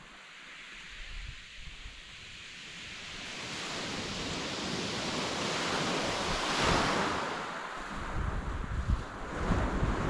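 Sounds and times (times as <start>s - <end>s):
waves breaking on shingle beach: 3.2s - 8.2s.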